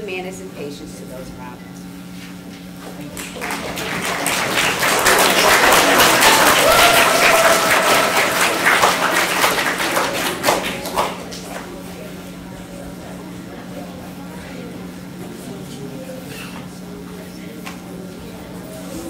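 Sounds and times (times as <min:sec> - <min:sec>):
audience applauding: 0:03.0 - 0:11.7.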